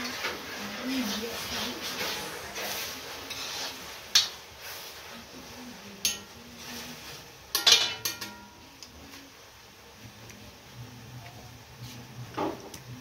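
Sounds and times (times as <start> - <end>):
metal spatula scraping a wok: 0.0 - 8.6.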